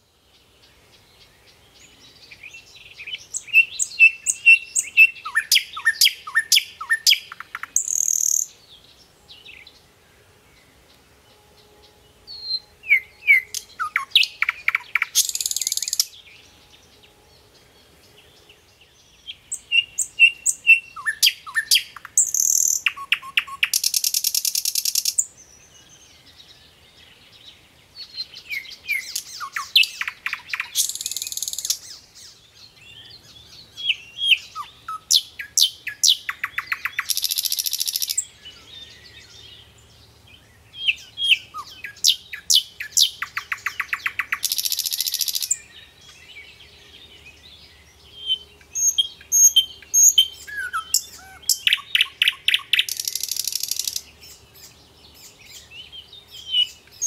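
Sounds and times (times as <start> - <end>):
songbirds singing: 0.0 - 57.0
high bird chirps: 3.0 - 8.5, 12.3 - 16.2, 19.5 - 25.2, 28.5 - 32.0, 33.8 - 38.2, 40.8 - 45.7, 48.2 - 55.6
fast rattling bird trill: 13.4 - 16.1, 35.6 - 38.2, 42.9 - 45.6, 50.9 - 54.1.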